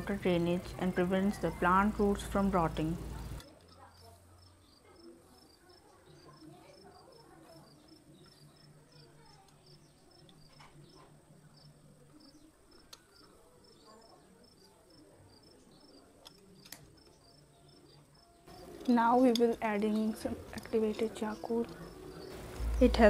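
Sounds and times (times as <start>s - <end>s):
faint high-pitched chirping: 3.1s - 18.9s.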